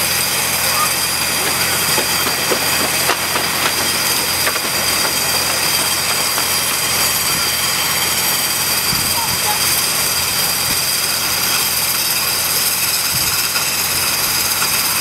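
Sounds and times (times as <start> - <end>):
core drill grinding into concrete: 0.8 - 9.1.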